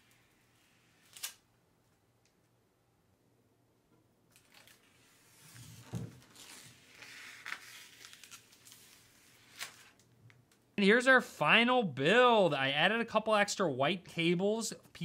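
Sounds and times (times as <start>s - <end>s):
rustling and crinkling handling noises: 4.3s - 10.6s.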